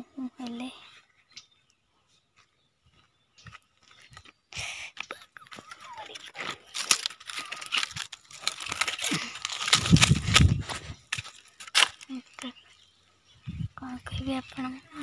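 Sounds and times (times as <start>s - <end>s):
dry leaves crunching underfoot: 5.4s - 13.0s.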